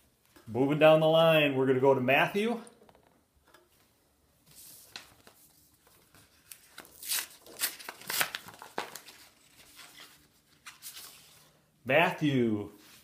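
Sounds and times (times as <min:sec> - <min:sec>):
paper rustling: 0:04.4 - 0:11.6
paper envelope tearing: 0:06.4 - 0:11.0.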